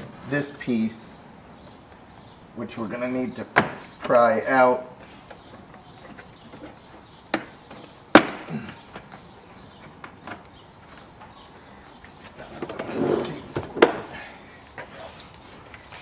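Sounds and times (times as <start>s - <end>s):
rustling and scraping: 4.9s - 8.0s, 12.0s - 14.1s.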